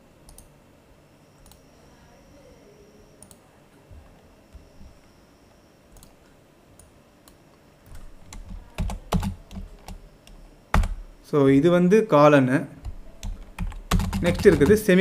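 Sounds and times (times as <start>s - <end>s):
low room hiss: 0.0s - 15.0s
computer mouse clicking: 0.3s - 0.5s, 5.9s - 6.2s.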